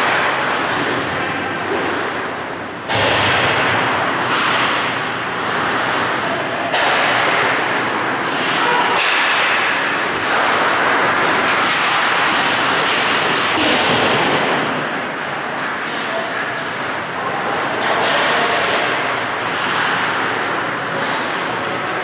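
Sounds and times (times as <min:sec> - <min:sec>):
skate blades scraping ice: 0:10.0 - 0:13.7.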